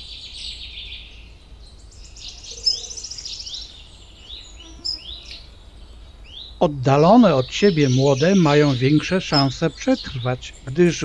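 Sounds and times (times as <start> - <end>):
faint high hiss: 0.0 - 11.0
small birds calling: 0.0 - 11.0
bird trilling: 2.3 - 11.0.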